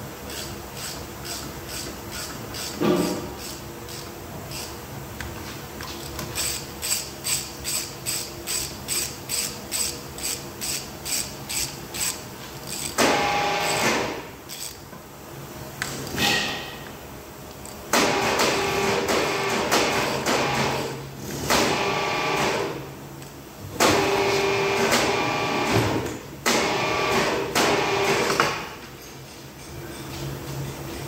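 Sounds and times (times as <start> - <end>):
ratchet wrench clicking: 0.3 - 2.8, 3.4 - 4.7, 5.8 - 13.0, 14.5 - 14.8.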